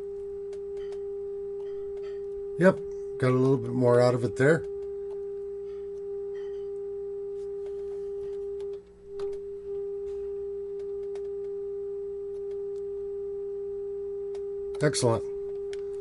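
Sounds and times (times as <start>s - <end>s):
steady test tone from radio: 0.0s - 16.0s.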